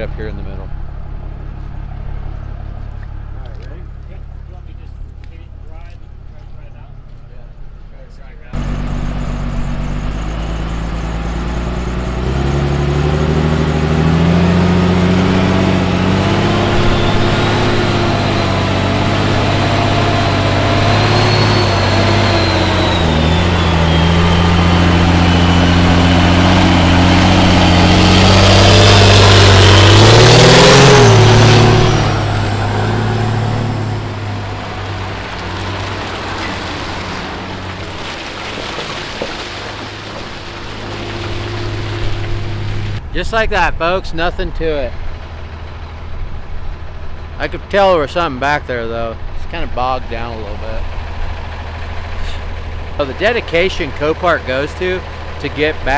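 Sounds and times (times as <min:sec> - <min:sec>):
diesel truck engines under load: 0:00.0 - 0:55.9
high whine: 0:08.6 - 0:37.6.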